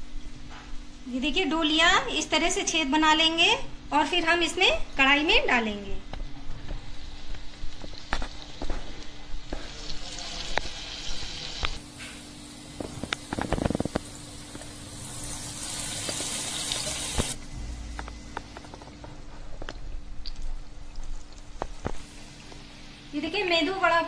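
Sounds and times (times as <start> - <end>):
batter sizzling in hot oil: 6.7 - 17.4
low thump: 17.5 - 18.6.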